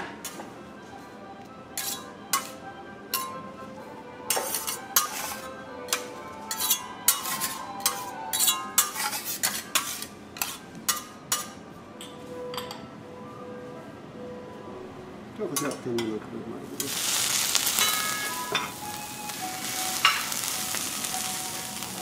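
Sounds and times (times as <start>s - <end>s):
metal kitchen utensils clinking: 4.3s - 12.8s, 16.8s - 22.0s.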